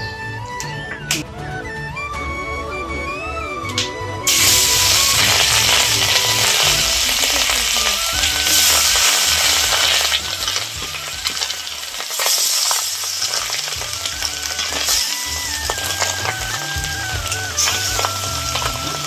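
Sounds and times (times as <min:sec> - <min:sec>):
fish sizzling in hot oil: 0:04.3 - 0:19.0.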